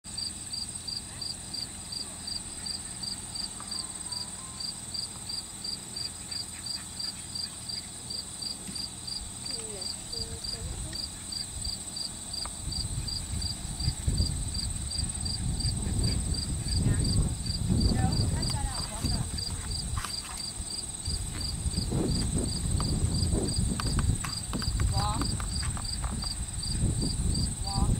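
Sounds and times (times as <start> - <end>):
high insect buzz: 0.1 - 27.9
insects chirping: 0.1 - 27.9
low rumble: 20.6 - 27.9.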